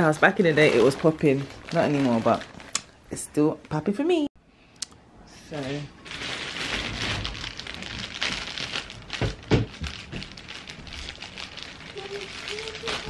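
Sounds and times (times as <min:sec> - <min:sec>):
plastic bag rustling and crinkling: 0:00.0 - 0:02.8, 0:05.5 - 0:13.0.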